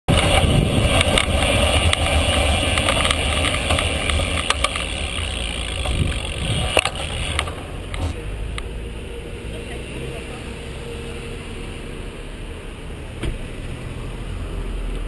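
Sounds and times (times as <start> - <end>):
bicycle clicks and rattles: 0.1 - 8.2
wind buffeting microphone: 0.1 - 8.2
road rumble: 0.1 - 15.0.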